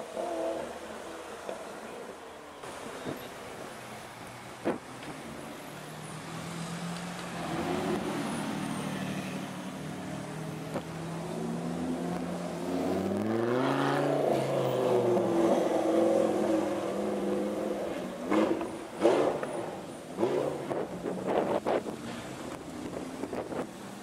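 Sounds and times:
car engine revving: 10.2s - 23.6s.

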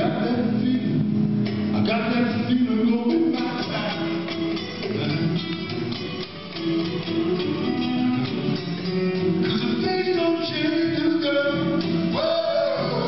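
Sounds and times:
man singing: 0.0s - 1.1s, 1.7s - 5.7s, 9.4s - 13.0s
acoustic guitar blues: 0.0s - 13.0s.

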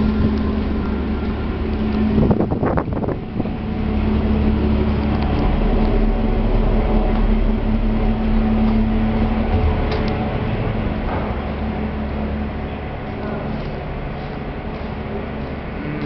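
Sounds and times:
ferry engines droning: 0.0s - 16.0s.

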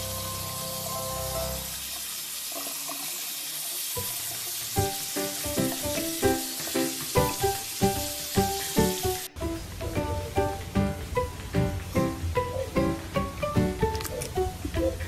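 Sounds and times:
tap water running into sink: 0.0s - 12.0s.

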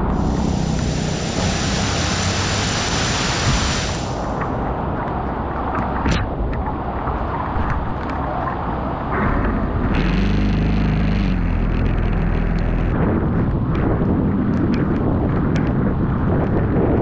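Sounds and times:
heavy rain: 0.0s - 4.6s
water running along roadside: 0.0s - 10.9s
vehicle driving through water: 0.0s - 13.3s
wind on microphone: 0.0s - 17.0s.

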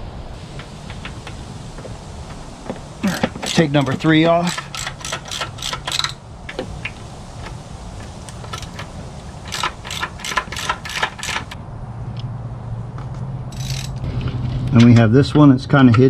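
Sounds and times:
steady low hum: 0.0s - 16.0s
ratchet wrench clicking: 3.1s - 7.6s, 8.3s - 11.6s, 13.5s - 14.1s.

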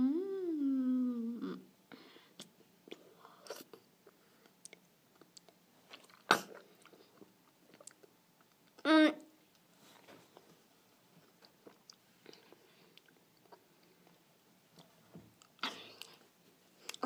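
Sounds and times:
mouth smacks and chewing: 2.4s - 8.8s, 11.3s - 14.2s.

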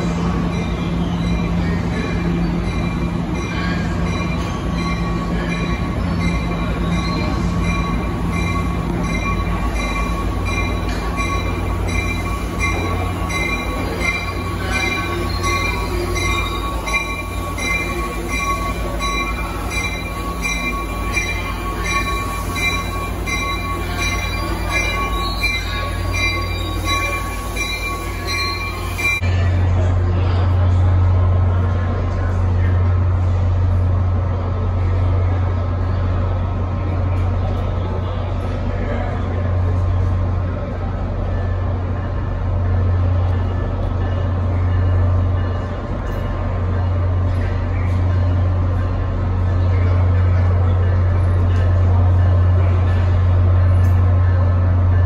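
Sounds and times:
train wheels squealing: 0.0s - 29.4s.

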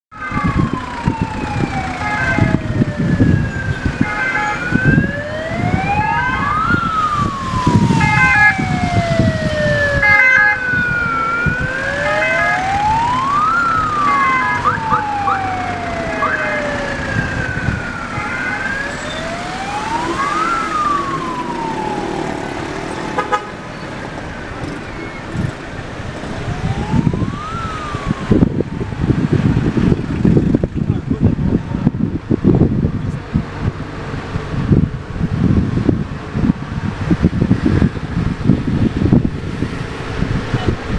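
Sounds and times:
wailing emergency sirens: 0.1s - 32.4s
low rumble of city traffic: 0.1s - 40.9s.

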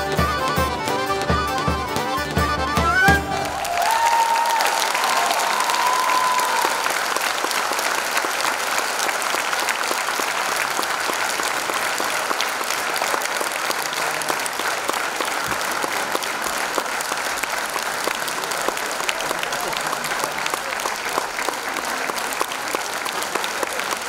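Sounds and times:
folk band held note: 0.0s - 4.4s
audience applauding: 0.0s - 24.0s.

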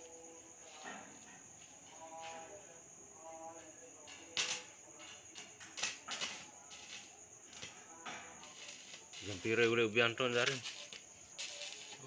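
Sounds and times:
welding arc crackling: 4.1s - 4.7s, 5.3s - 12.0s.

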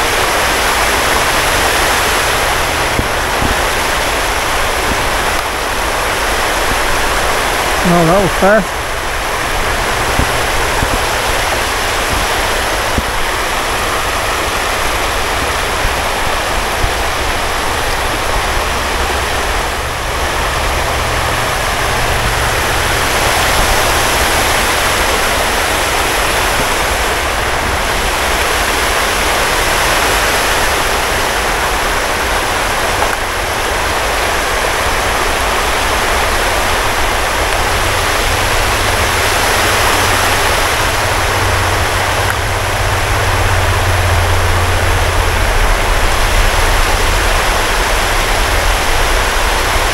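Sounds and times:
water rushing over rocks: 0.0s - 49.9s
low rumble: 37.0s - 49.9s.

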